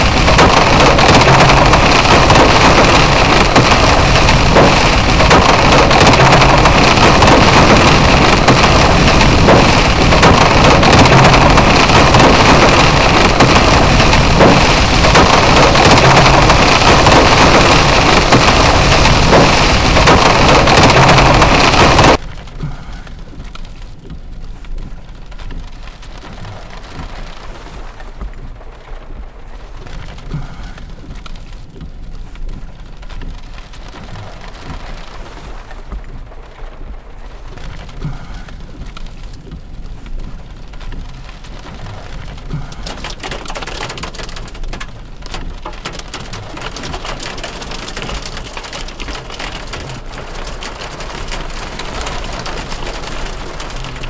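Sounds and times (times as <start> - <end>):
wind gusts blasting microphone: 0.0 - 22.2
rain pattering on a car: 0.0 - 54.0.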